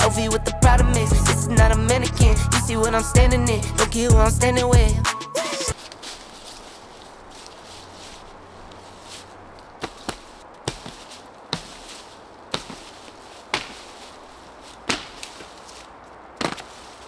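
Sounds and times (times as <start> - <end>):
faint steady background noise: 5.7 - 17.0.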